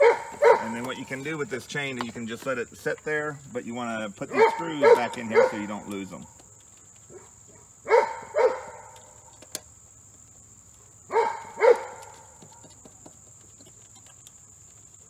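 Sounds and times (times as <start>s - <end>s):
dog barking: 0.0s - 0.9s, 4.3s - 5.9s, 7.1s - 9.0s, 11.1s - 12.4s.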